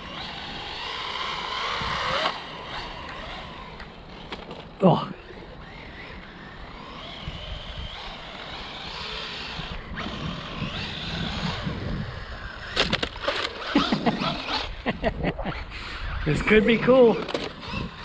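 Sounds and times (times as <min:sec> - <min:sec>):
toy car electric motor whining: 0:00.0 - 0:18.0.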